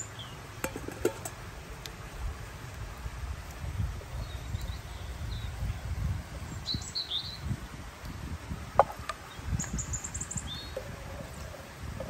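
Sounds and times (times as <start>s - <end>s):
small birds chirping: 0.0s - 0.4s, 4.0s - 7.6s, 9.1s - 11.7s.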